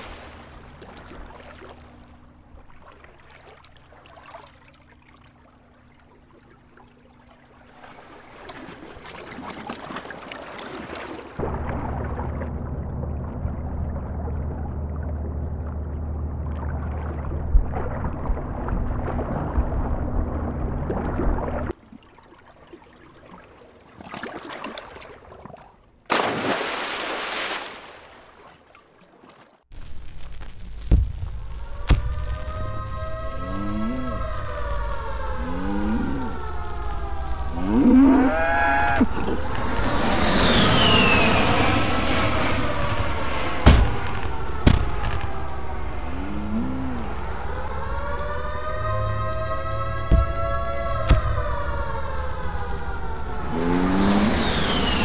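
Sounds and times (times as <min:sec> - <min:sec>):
short rush of water: 0:00.0 - 0:12.6, 0:21.4 - 0:29.7
gentle wash of water: 0:00.0 - 0:29.7
muffled underwater rush: 0:07.6 - 0:21.8, 0:30.6 - 0:55.0
low steady drone: 0:11.4 - 0:21.7, 0:30.6 - 0:55.0.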